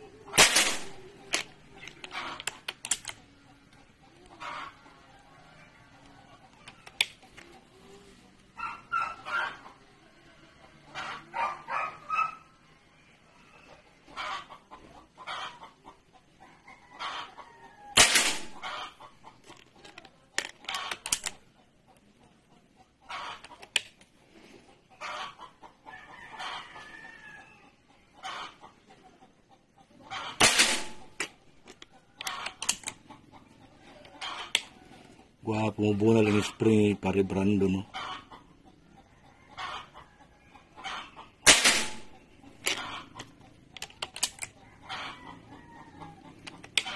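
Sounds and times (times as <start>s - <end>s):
chickens clucking: 0.0s - 46.9s
air rifle cracks: 0.4s - 1.5s, 18.0s - 18.6s, 30.4s - 31.3s, 41.5s - 42.1s
rooster crowing: 25.9s - 27.7s, 44.6s - 46.3s.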